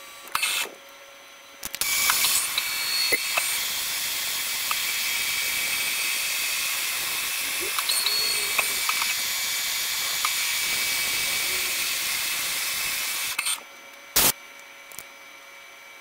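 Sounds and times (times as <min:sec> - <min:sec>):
milling machine cutting metal: 0:00.0 - 0:00.8, 0:01.7 - 0:13.6
loud burst of noise: 0:01.8 - 0:13.4, 0:14.2 - 0:14.4.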